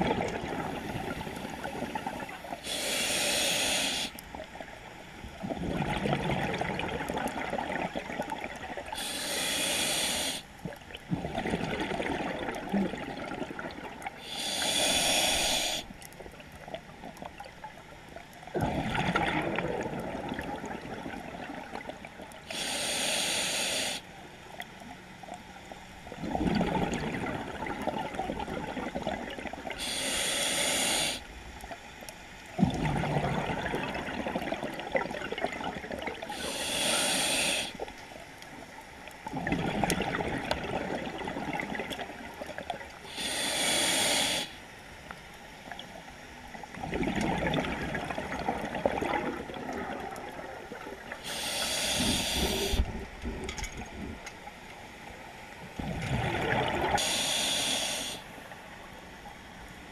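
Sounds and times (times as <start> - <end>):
bubbling exhaled air: 0.0 - 4.1, 5.4 - 15.9, 18.5 - 24.0, 26.2 - 31.2, 32.6 - 37.8, 39.3 - 44.5, 46.7 - 54.2, 55.8 - 58.3
hissing inhale through regulator: 0.6 - 4.3, 8.9 - 10.6, 14.2 - 16.1, 22.4 - 24.1, 29.7 - 31.3, 36.2 - 37.9, 43.0 - 44.7, 51.1 - 53.1, 56.9 - 58.6.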